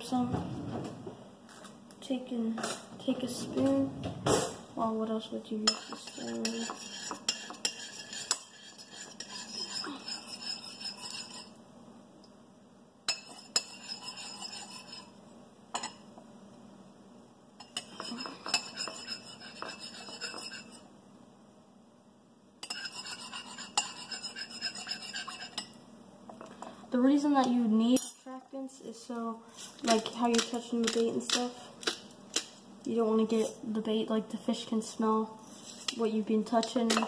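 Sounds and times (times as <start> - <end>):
spoon stirring in bowl: 5.6 - 11.6, 13.1 - 15.2, 17.6 - 20.8, 22.6 - 26.7.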